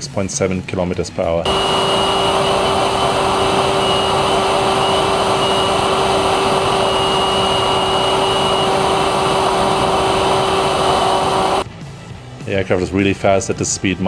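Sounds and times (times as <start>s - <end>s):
electric motor whine: 1.5s - 11.6s.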